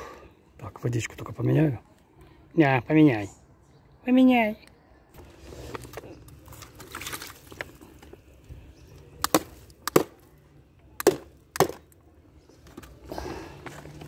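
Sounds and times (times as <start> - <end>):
sharp knocks of hard object: 9.2 - 10.2, 11.0 - 11.8.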